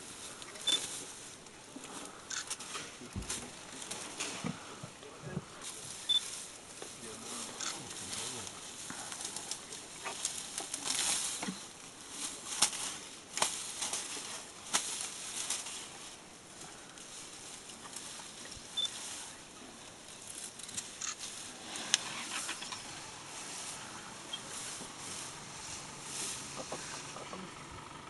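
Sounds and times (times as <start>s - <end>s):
elephant chewing foliage: 0.0s - 28.0s
leaves rustling: 0.0s - 28.0s
twigs and branches snapping: 7.8s - 15.9s.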